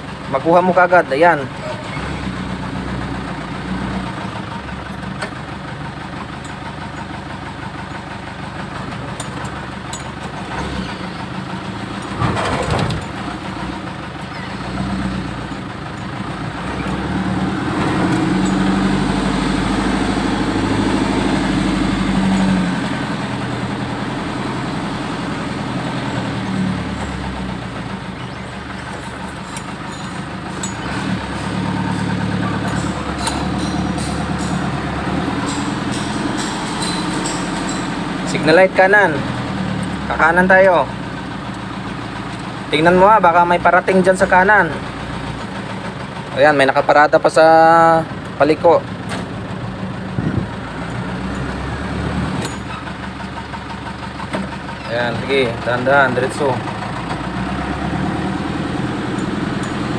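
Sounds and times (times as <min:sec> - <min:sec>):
truck engine running: 0:00.0 - 0:59.9.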